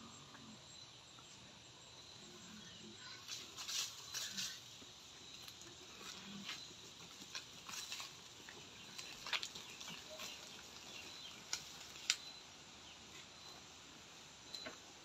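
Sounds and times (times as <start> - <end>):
rustling of leaves and branches: 3.0 - 13.4
branches snapping and clicking: 9.0 - 9.8, 11.4 - 12.3.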